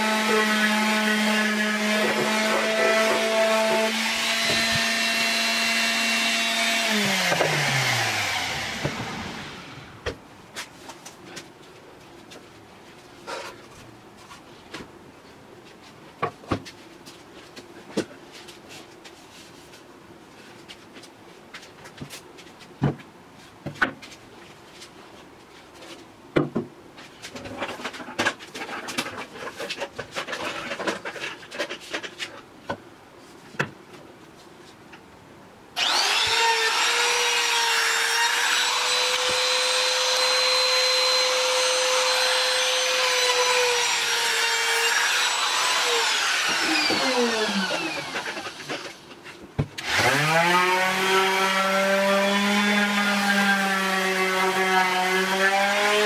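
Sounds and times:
power tool motor running: 35.8s - 43.5s, 44.8s - 48.6s
orbital sander sanding wood: 35.8s - 48.9s, 49.8s - 56.0s.

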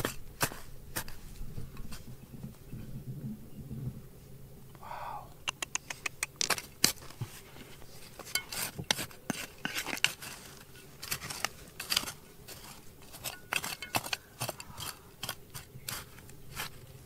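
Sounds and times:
hard objects clinking and scraping: 6.4s - 16.8s.

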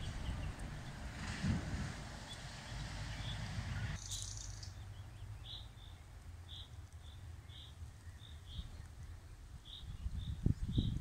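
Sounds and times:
wind rumble on microphone: 0.0s - 4.0s, 7.9s - 11.0s
nightingale singing: 3.2s - 11.0s.

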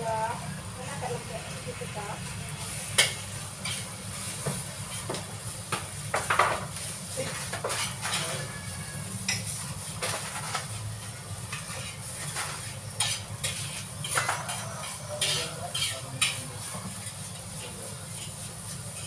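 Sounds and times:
clatter of glasses and dishes: 6.1s - 8.5s, 9.3s - 10.7s, 11.5s - 17.0s.

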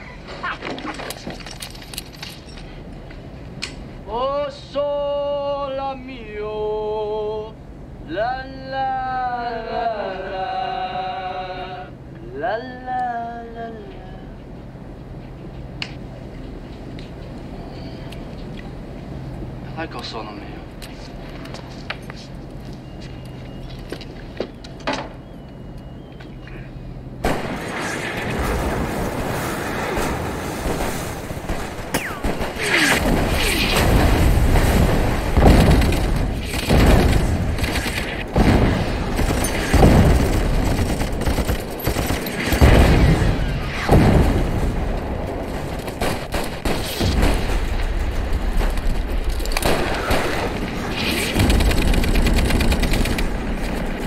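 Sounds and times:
heavy explosions: 27.2s - 54.0s
breaking surf: 27.5s - 40.7s
gunfire: 31.5s - 44.5s.

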